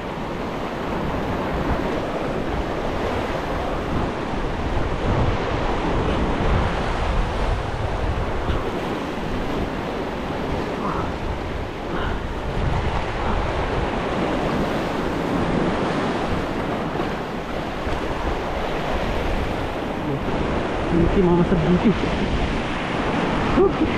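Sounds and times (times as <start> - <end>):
wind on microphone: 0.0 - 23.9.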